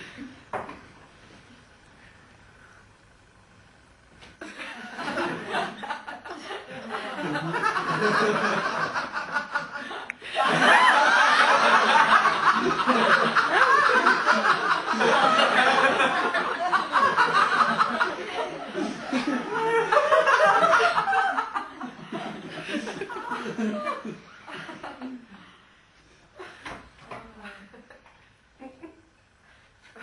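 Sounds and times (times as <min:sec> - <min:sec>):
audience laughter: 0:04.4 - 0:25.3.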